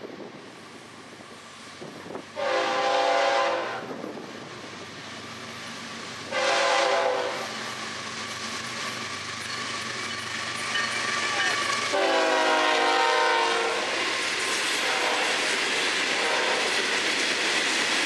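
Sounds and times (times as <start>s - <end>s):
rumble of approaching train: 0.0s - 18.0s
locomotive air horn blasts: 2.4s - 3.9s, 6.3s - 7.5s, 11.9s - 14.0s, 14.8s - 15.4s, 16.2s - 16.7s.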